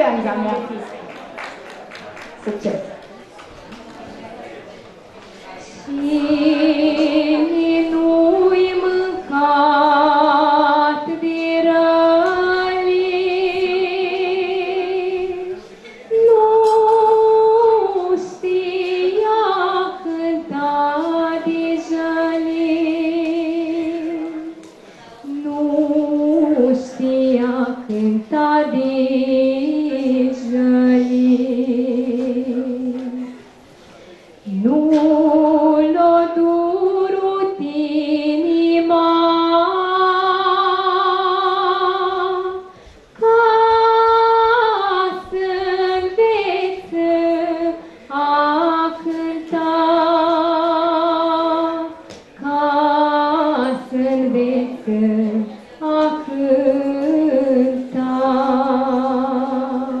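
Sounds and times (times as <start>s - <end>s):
girl singing unaccompanied: 5.8s - 33.3s, 34.5s - 60.0s.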